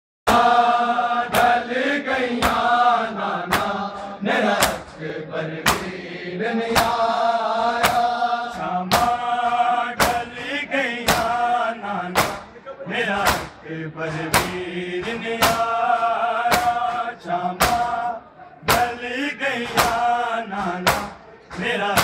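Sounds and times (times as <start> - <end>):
men chanting a lament: 0.3 - 22.0
hands striking chests: 5.6 - 5.9, 12.2 - 12.5, 13.2 - 13.6.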